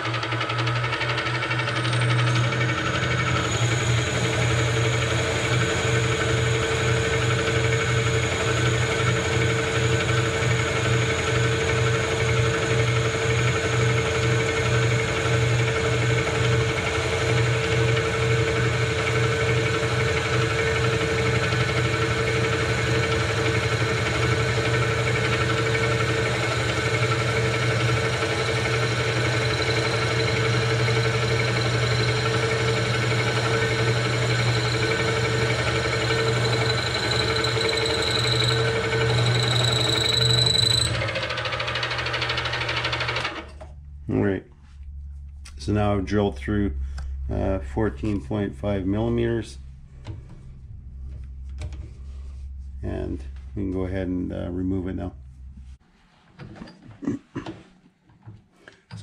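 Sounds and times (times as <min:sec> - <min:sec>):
milling machine drilling: 0:00.0 - 0:43.5.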